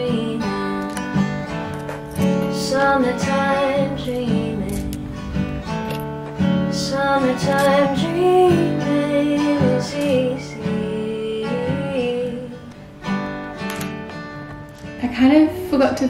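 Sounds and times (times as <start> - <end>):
woman singing: 0.0 - 1.1, 2.2 - 5.5, 6.5 - 12.8
acoustic guitar strumming: 0.0 - 16.0.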